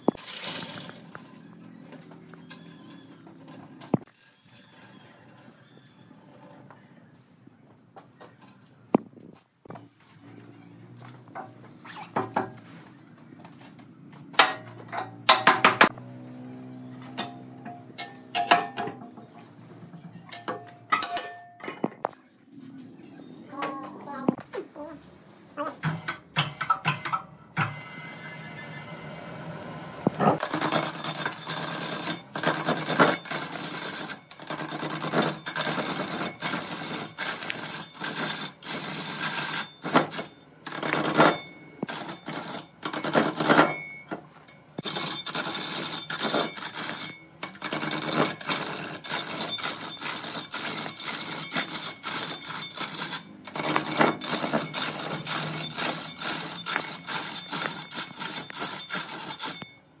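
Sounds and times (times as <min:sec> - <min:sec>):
lathe tool scraping spinning wood: 0:30.2 - 0:43.7, 0:44.8 - 0:59.7.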